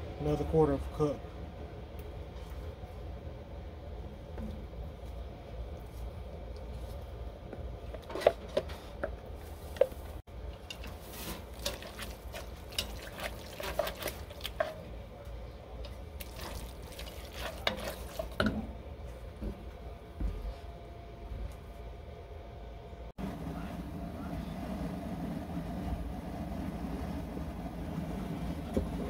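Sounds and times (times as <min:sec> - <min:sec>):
spoon squelching in wet mixture: 0:10.6 - 0:14.9, 0:15.8 - 0:18.4.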